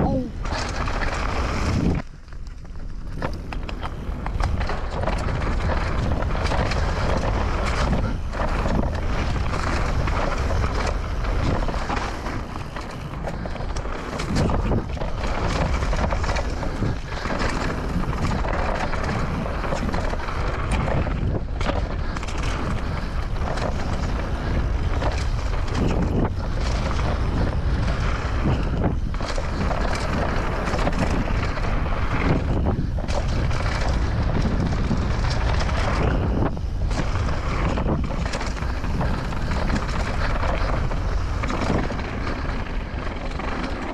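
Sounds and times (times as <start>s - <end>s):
bike tyres rolling over dirt: 0.0s - 43.9s
wind rushing over microphone: 0.0s - 43.9s.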